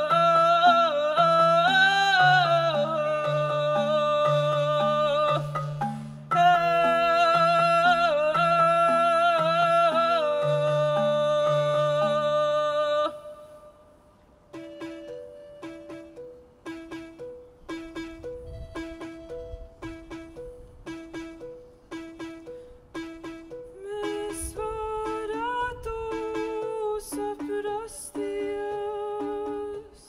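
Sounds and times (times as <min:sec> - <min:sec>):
woman singing wordless vowel: 0:00.0 - 0:05.7, 0:06.3 - 0:13.6, 0:23.7 - 0:30.0
low instrumental notes: 0:00.0 - 0:13.1, 0:14.4 - 0:30.0.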